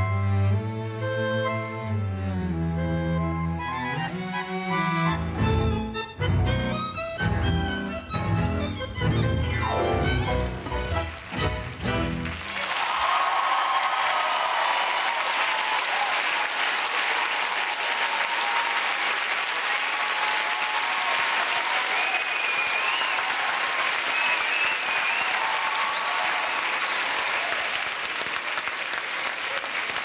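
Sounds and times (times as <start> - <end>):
audience applauding and cheering: 10.1 - 30.0
high whistles from crowd: 21.7 - 27.6.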